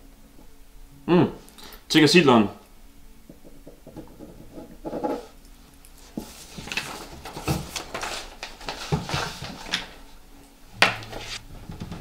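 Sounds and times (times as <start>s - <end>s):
papers rustling on a desk: 6.0s - 10.2s, 10.8s - 12.0s.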